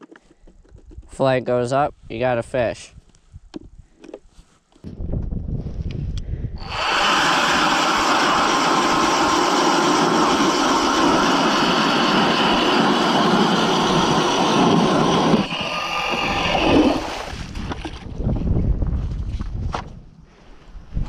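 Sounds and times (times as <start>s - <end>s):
electric ice auger drilling: 6.6s - 18.0s.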